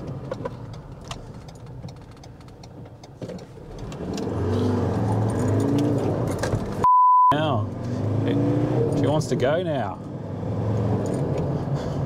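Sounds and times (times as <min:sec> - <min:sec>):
truck engine revving: 0:03.7 - 0:06.8, 0:07.4 - 0:11.7.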